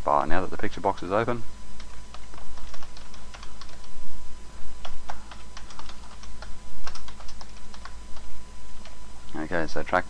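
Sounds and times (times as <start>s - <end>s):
computer keyboard typing: 1.8s - 4.0s, 4.8s - 9.0s.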